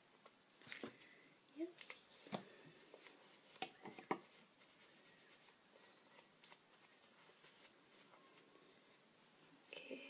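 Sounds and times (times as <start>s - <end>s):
tissue rustling in hands: 4.2s - 8.6s.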